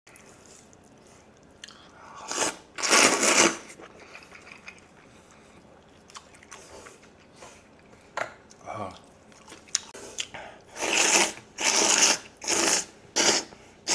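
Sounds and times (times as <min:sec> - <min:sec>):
chewing with wet clicks: 0:00.1 - 0:02.0, 0:03.8 - 0:10.7
noodles slurped: 0:00.2 - 0:05.2, 0:09.7 - 0:13.9.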